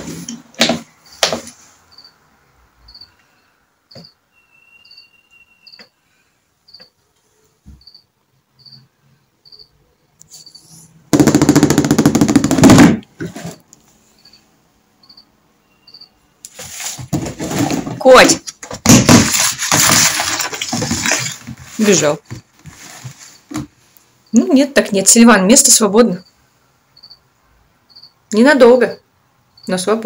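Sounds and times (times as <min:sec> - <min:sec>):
cricket chirping: 0:01.9 - 0:02.2, 0:02.8 - 0:05.9, 0:06.7 - 0:06.9, 0:07.8 - 0:10.7, 0:14.1 - 0:16.3, 0:26.2 - 0:27.3, 0:27.9 - 0:28.2, 0:28.9 - 0:29.8
plastic box scraping across floor: 0:12.7 - 0:13.7, 0:16.5 - 0:18.4, 0:19.0 - 0:23.7.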